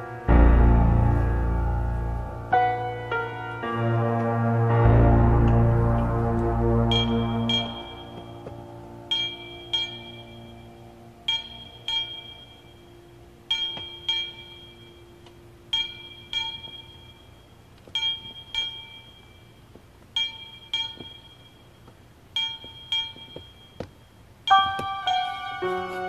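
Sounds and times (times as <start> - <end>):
sustained chords: 0.0 - 17.7
bell-like chime: 6.9 - 26.0.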